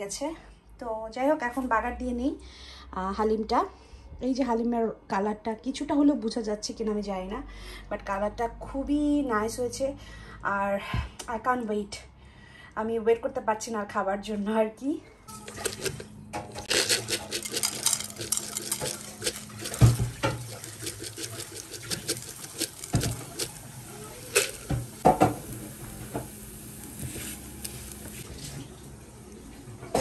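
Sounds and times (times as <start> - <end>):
spatula scraping and knocking pan: 16.6 - 23.6
oil sizzling in a pan: 18.9 - 30.0.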